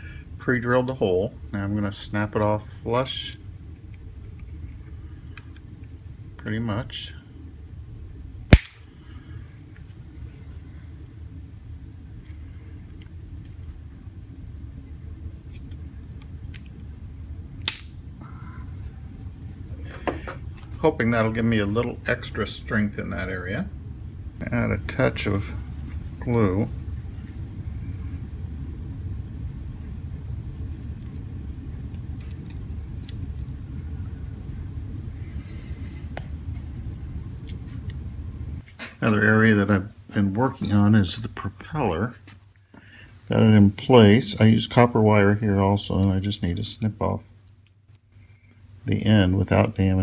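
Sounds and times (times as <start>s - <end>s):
low room rumble: 0.0s - 50.0s.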